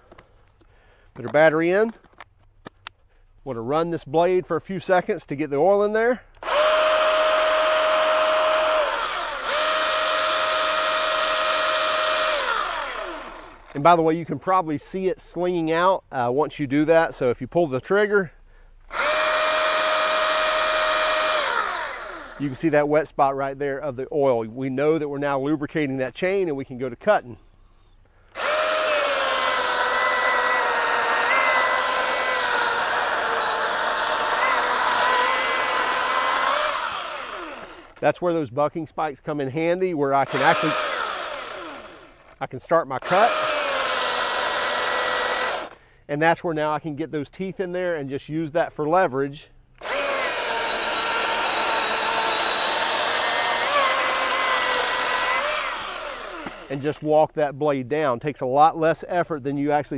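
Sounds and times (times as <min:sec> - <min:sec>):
cordless chainsaw whine: 0:06.4 - 0:13.8, 0:18.9 - 0:22.6, 0:28.3 - 0:38.0, 0:40.2 - 0:42.4, 0:43.0 - 0:45.8, 0:49.8 - 0:56.8.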